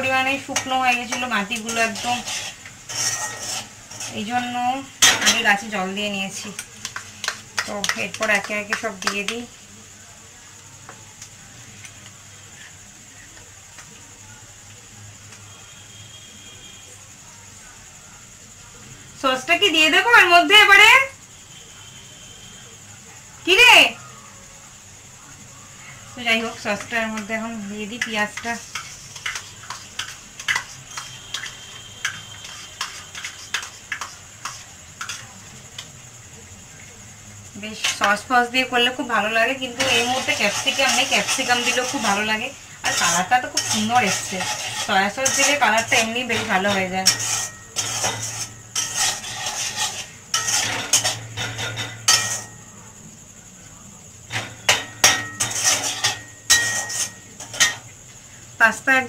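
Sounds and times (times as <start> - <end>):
stirring scrapes and clinks: 0.0 - 9.3, 26.4 - 35.9, 39.6 - 52.7, 54.3 - 57.9
pasta sizzling in a pan: 0.0 - 59.0.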